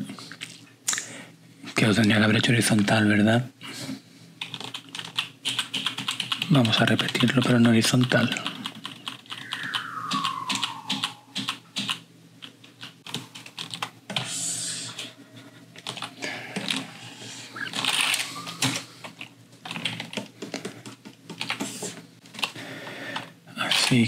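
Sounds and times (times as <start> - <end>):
computer keyboard clicking: 4.4 - 12.0, 12.6 - 13.9, 15.8 - 16.8, 17.7 - 21.7.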